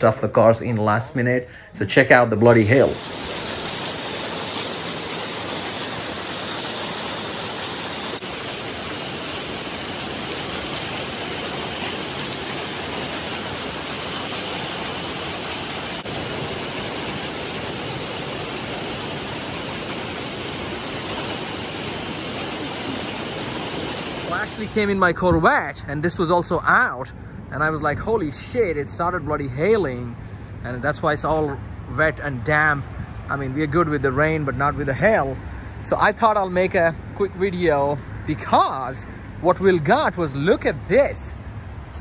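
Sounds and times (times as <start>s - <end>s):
hail and rain on pavement: 3.0s - 24.6s.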